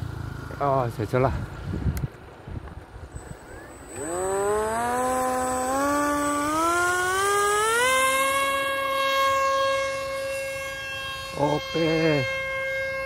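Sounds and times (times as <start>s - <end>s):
electric motor whine: 3.0s - 13.0s.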